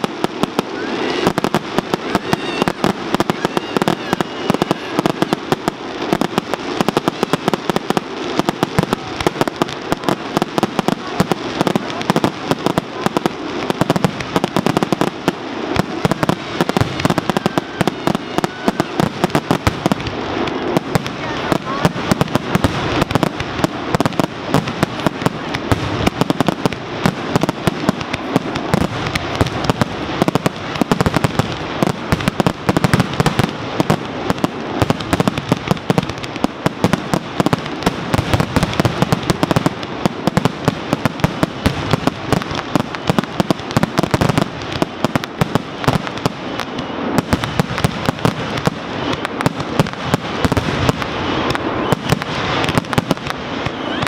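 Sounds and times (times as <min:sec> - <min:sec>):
fireworks bursting and crackling: 0:00.0 - 0:54.0.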